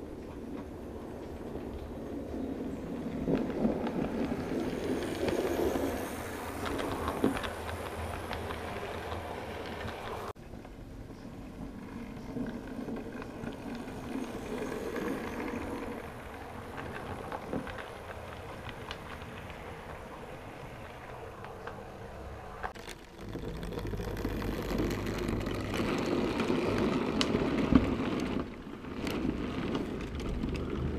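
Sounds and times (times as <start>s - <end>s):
small clicks of train wheels: 0.0s - 10.8s, 11.8s - 21.9s.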